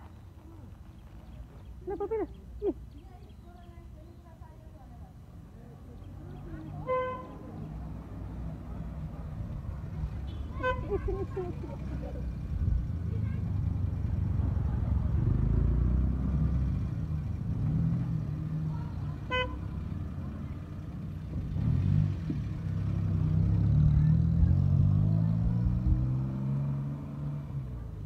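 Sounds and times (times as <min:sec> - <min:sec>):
vehicle engine running: 0:06.3 - 0:26.6.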